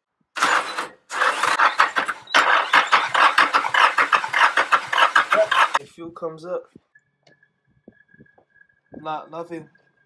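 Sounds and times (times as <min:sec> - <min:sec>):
engine cranking on starter: 0:00.4 - 0:05.8.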